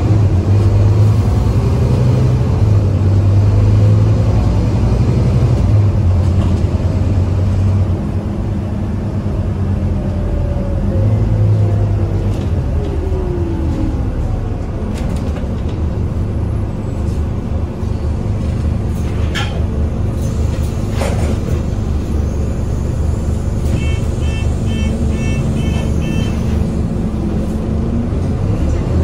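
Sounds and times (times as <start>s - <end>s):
bus engine running: 0.0s - 29.0s
short high beeps: 23.8s - 26.5s.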